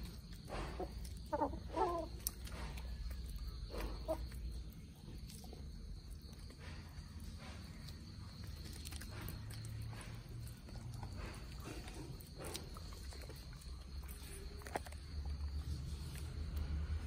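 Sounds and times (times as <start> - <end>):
chickens clucking: 0.0 - 5.5.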